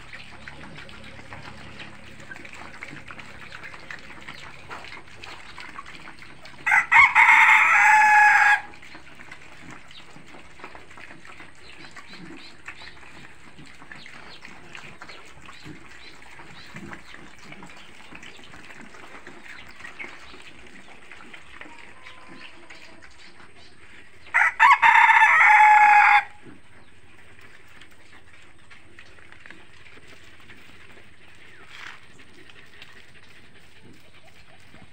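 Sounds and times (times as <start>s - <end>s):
chicken clucking: 0.0s - 26.9s, 31.5s - 34.9s
rooster crowing: 6.6s - 8.7s, 24.3s - 26.4s.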